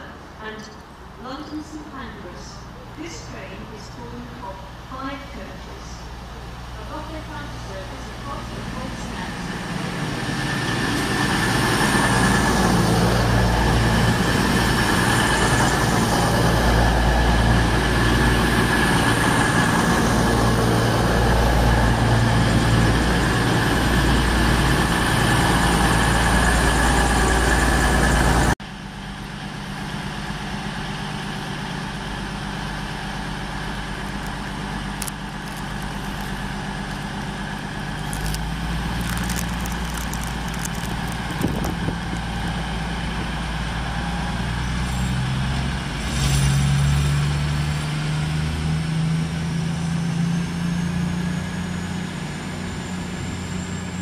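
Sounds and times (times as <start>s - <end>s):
train rumbling past: 2.1s - 50.2s
diesel engines idling: 30.3s - 43.8s.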